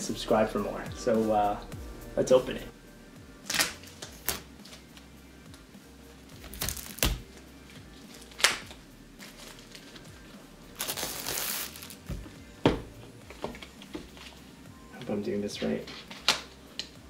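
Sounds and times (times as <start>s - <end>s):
plastic wrap crinkling: 6.4s - 7.2s, 8.0s - 10.0s, 10.8s - 12.0s.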